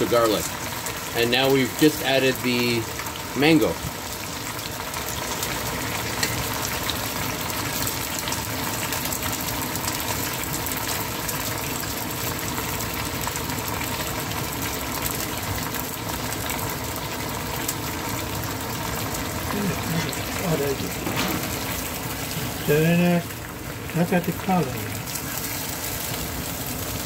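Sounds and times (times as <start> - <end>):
fruit sizzling in hot oil: 0.0 - 27.0.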